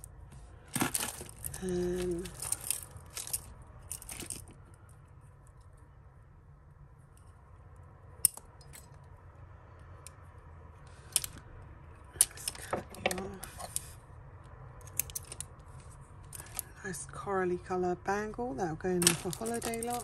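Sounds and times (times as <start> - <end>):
jewellery clinking and rattling: 0.0 - 5.8, 8.2 - 9.2, 11.0 - 14.0, 14.8 - 16.8, 18.9 - 20.0.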